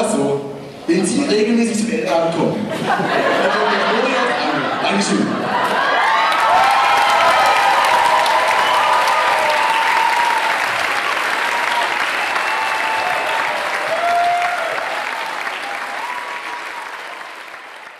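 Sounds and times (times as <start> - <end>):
audience applauding: 5.6 - 17.9.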